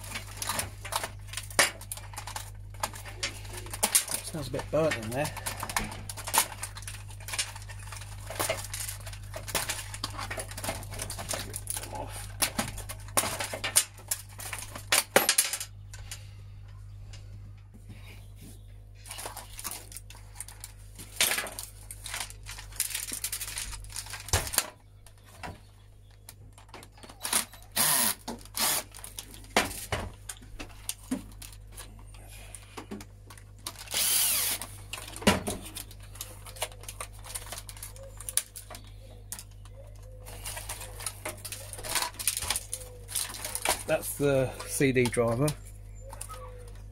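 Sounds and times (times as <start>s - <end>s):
plastic parts clicking and rattling: 0.0s - 16.2s, 19.1s - 46.9s
cordless drill-driver whirring: 27.8s - 28.9s, 33.9s - 34.7s.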